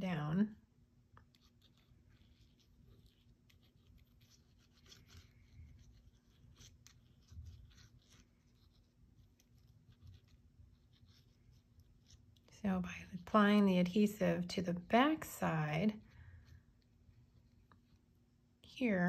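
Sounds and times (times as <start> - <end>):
glue bottle tip scratching paper: 1.3 - 12.3.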